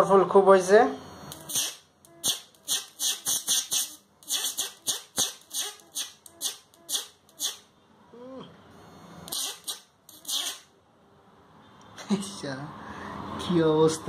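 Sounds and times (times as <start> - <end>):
electric sparks crackling: 1.3 - 7.6.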